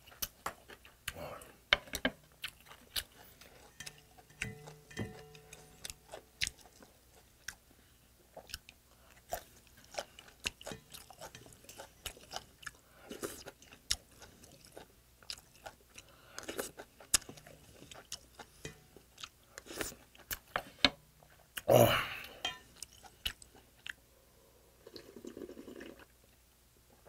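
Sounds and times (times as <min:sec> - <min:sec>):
chewing and crunching food: 0:00.0 - 0:24.1
utensils clicking on metal bowl: 0:03.7 - 0:06.0, 0:18.6 - 0:18.8.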